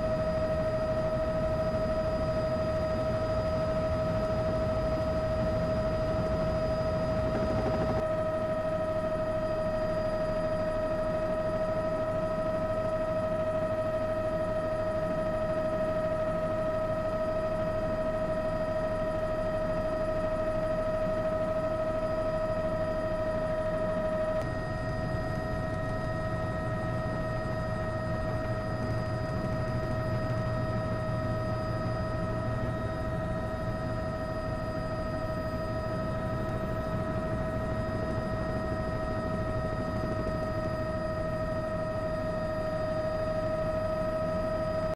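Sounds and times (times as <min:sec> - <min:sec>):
steady hum: 0:00.0 - 0:08.1.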